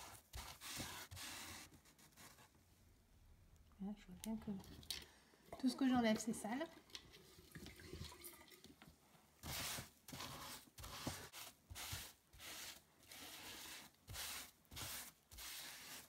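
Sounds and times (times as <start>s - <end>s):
sponge scrubbing wood: 9.4s - 16.0s.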